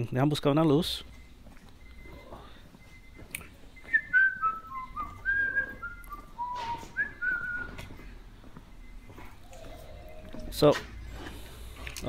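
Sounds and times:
person whistling a tune: 3.8 - 8.0.

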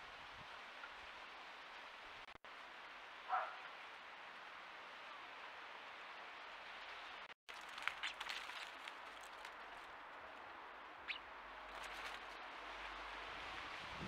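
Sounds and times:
faint outdoor hiss: 0.0 - 14.0
sparrows chirping: 11.0 - 12.3.

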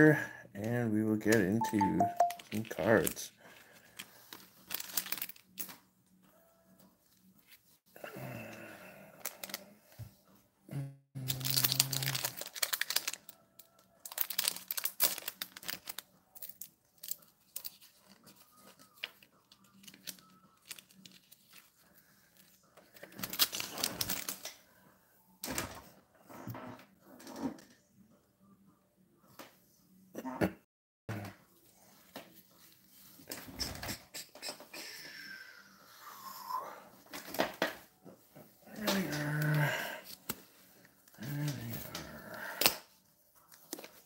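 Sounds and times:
packaging rustling and tearing: 4.0 - 5.6, 11.2 - 16.1, 17.1 - 21.8, 22.4 - 24.5.

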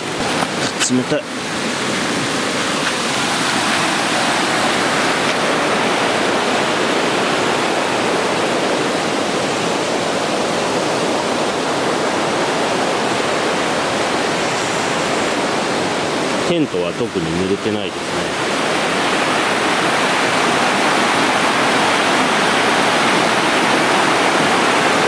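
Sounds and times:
river rushing: 0.0 - 25.0.

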